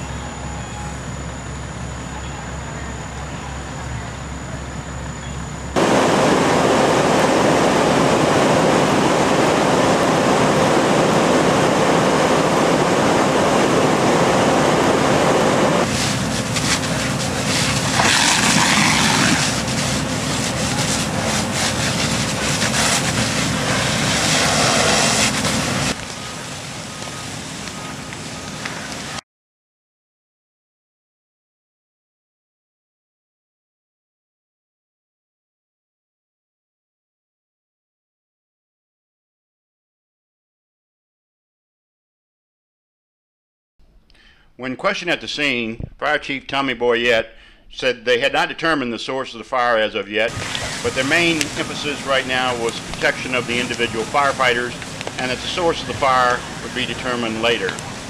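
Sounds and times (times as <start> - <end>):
engine-like drone: 0.0 - 29.2, 50.3 - 58.0
loud steady rush: 0.1 - 29.2, 50.3 - 58.0
fire crackling: 5.8 - 29.2, 50.3 - 58.0.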